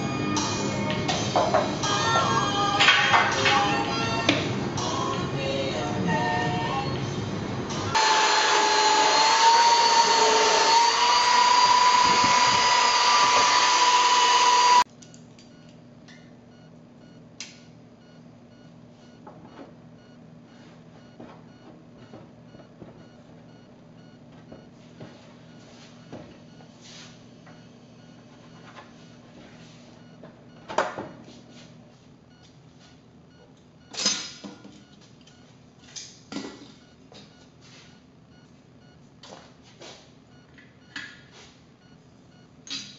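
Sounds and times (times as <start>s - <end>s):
power tool motor running: 7.9s - 14.9s.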